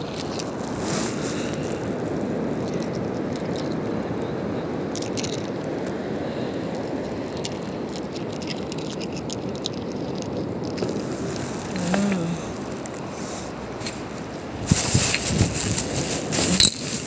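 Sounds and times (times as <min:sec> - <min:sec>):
crunching of shells and sand: 0:00.0 - 0:17.0
wind: 0:00.0 - 0:17.0.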